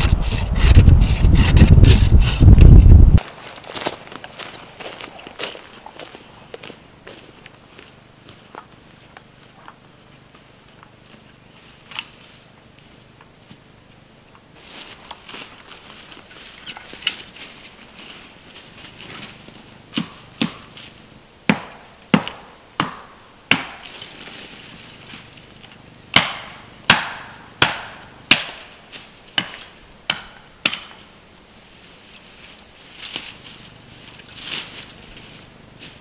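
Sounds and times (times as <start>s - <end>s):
footsteps on forest litter: 3.2s - 21.1s, 23.8s - 25.6s, 31.0s - 36.0s
axe chopping wood: 19.9s - 20.8s, 21.5s - 23.9s, 26.1s - 28.7s, 29.4s - 31.0s.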